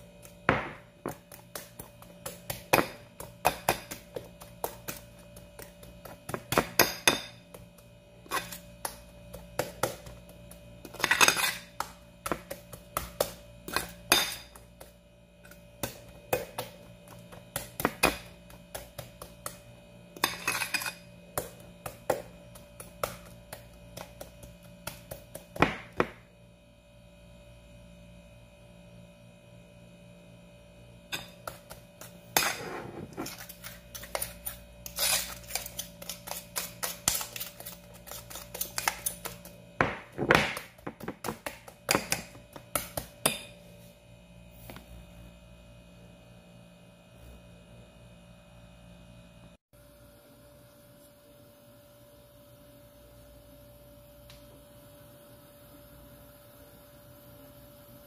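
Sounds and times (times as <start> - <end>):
steady low hum: 0.0 - 58.0
fork clinking against ceramic bowl: 20.2 - 21.0.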